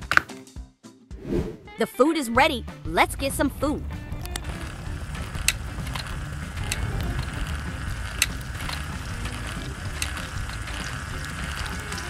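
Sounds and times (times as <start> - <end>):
toy motor driving gears: 3.2 - 12.0
sharp mechanical clicks: 4.2 - 12.0.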